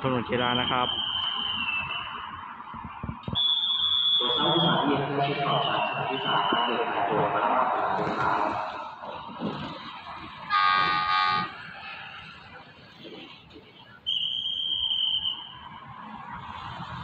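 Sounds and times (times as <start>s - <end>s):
high steady whistle: 0.4s - 2.3s, 3.2s - 7.1s, 13.8s - 15.7s
train rumbling: 5.0s - 13.8s
locomotive horn blast: 10.4s - 11.6s.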